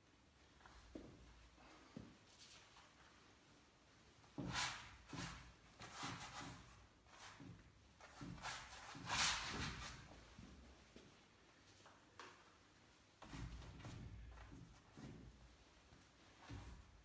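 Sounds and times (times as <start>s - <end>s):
paint brush swishing and scraping: 4.3s - 10.9s.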